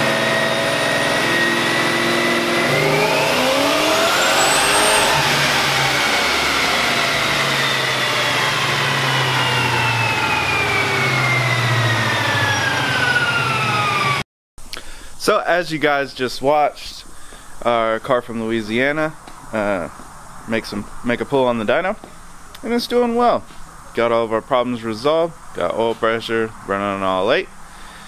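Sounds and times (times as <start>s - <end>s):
car engine revving with whine: 0.0s - 14.2s
whine falling in pitch: 0.0s - 14.2s.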